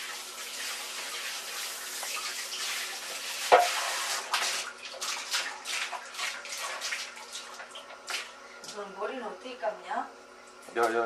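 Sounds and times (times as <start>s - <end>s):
water splashing in bathtub: 0.0s - 8.8s.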